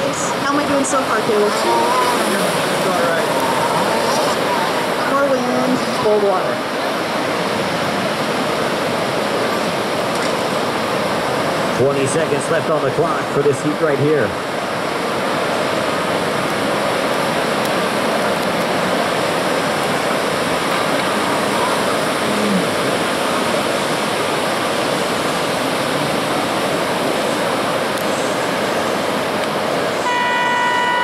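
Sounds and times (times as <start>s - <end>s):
heavy surf breaking: 0.0s - 31.0s
horn sounding steady note: 30.0s - 31.0s.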